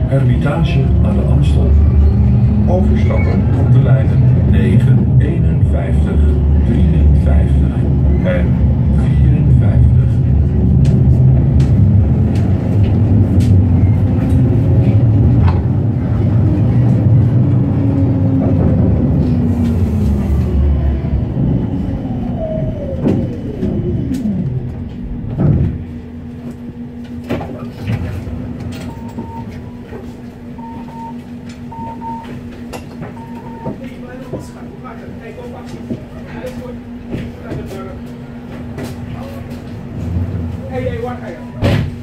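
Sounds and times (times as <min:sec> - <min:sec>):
tram stopping thump: 0:00.0 - 0:34.6, 0:35.6 - 0:42.0
steady tram hum: 0:00.0 - 0:42.0
short beeps: 0:28.8 - 0:29.8, 0:30.6 - 0:32.4, 0:33.2 - 0:33.8.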